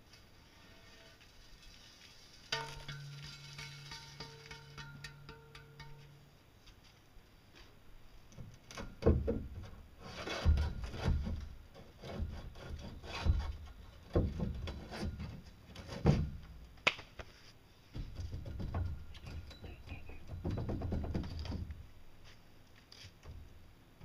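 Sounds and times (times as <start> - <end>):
metal pole knocking and scraping: 2.5 - 6.3, 8.7 - 16.5, 17.9 - 21.8.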